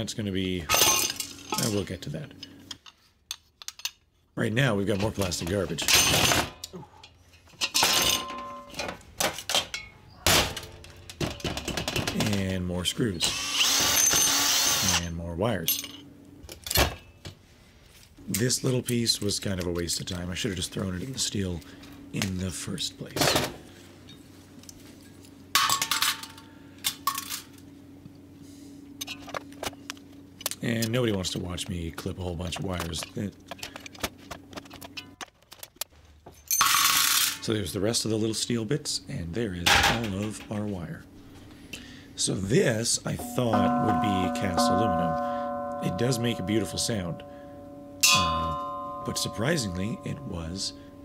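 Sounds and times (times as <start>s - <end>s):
faint steady hum: 0.0s - 51.0s
metal parts clinking on metal bench: 0.7s - 1.8s, 2.8s - 4.0s, 7.4s - 9.9s
metal and plastic clattering: 7.4s - 12.5s, 32.6s - 35.9s.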